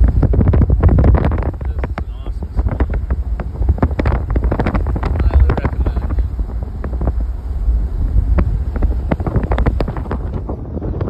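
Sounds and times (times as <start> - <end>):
low road rumble: 0.0 - 11.0
wind buffeting microphone: 0.0 - 11.0.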